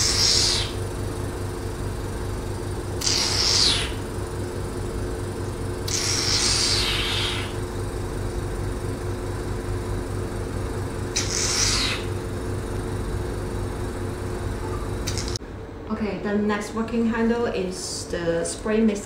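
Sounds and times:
vacuum suction pump humming: 0.0s - 15.6s
short hisses of air: 3.0s - 4.0s, 11.2s - 12.1s.

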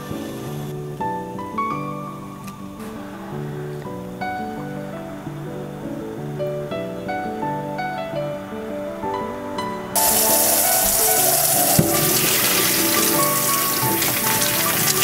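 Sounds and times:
background music: 0.0s - 15.0s
water gushing into colander: 10.0s - 15.0s
knock: 11.6s - 12.6s.

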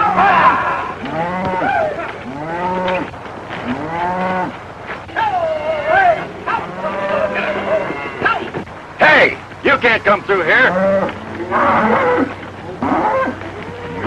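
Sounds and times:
cattle mooing: 0.0s - 4.6s, 6.5s - 8.5s, 10.6s - 14.0s.

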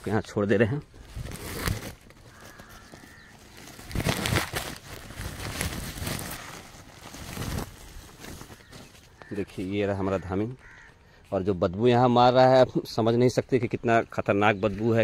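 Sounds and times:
crows cawing: 2.1s - 4.8s, 5.4s - 11.4s.

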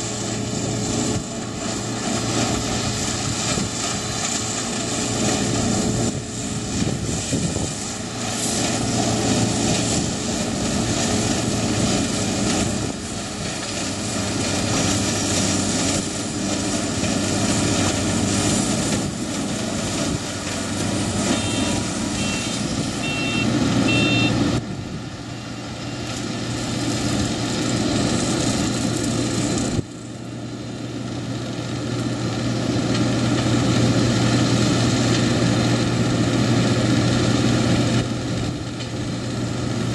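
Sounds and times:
combine harvester machinery running: 0.0s - 39.9s
short high beeps: 21.3s - 24.4s.

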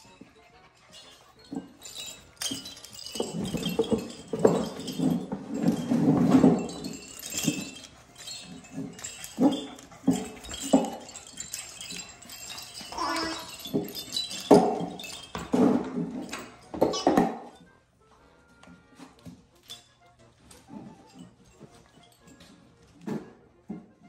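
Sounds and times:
puppies growling and scuffling: 0.0s - 17.4s
toy bell tinkling: 0.0s - 17.8s, 19.5s - 23.1s.

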